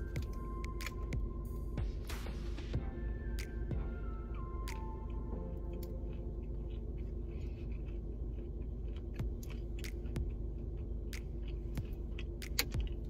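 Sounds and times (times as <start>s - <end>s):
chewing and biting brownie: 4.3s - 13.0s.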